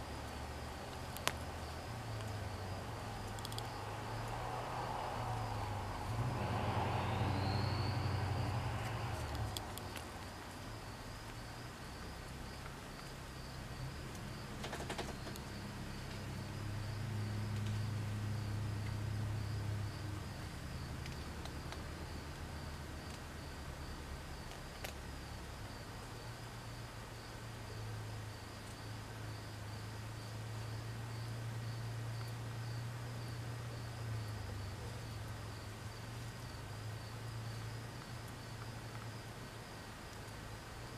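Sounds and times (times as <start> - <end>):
insects trilling: 0.0 - 40.9
faint clicks: 1.1 - 1.4, 3.3 - 4.4
low hum: 1.5 - 11.1.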